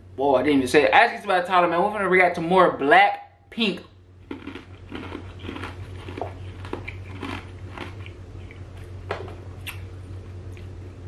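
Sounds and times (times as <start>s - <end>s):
low steady hum: 0.0s - 11.0s
mouth clicks and smacks: 9.6s - 9.9s.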